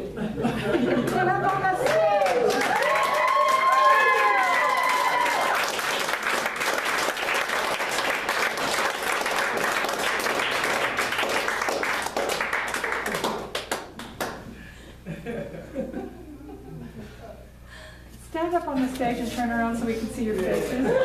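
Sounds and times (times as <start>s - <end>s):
audience applauding: 1.0s - 14.4s
whoops and cheers: 1.8s - 5.8s.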